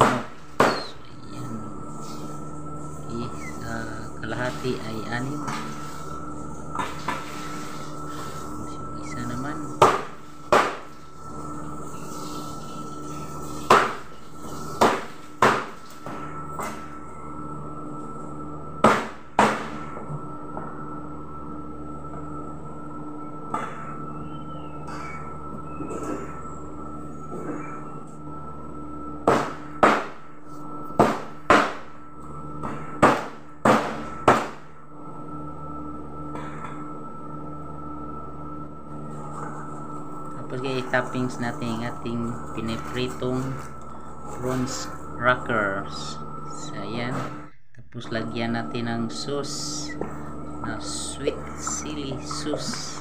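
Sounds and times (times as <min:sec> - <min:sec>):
cleaver chopping on cutting board: 0:00.0 - 0:00.9
cleaver chopping on plastic board: 0:00.0 - 0:00.9, 0:09.8 - 0:10.8
steady hum: 0:00.0 - 0:53.0.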